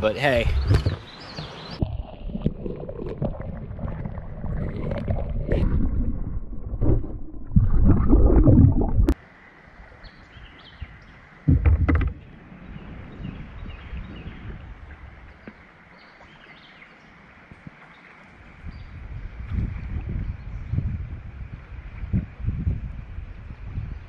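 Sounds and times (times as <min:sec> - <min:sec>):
water sloshing and gurgling: 0:00.4 - 0:09.2, 0:11.5 - 0:12.3.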